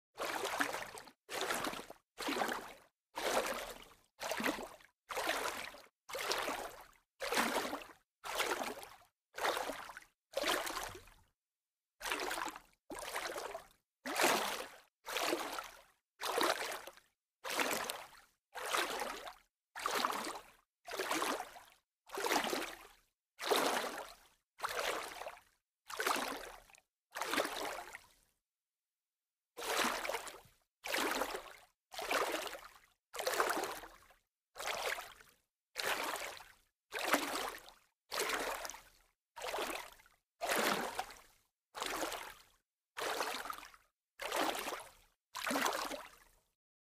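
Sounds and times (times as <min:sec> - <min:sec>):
light water splashes: 0:00.2 - 0:11.0.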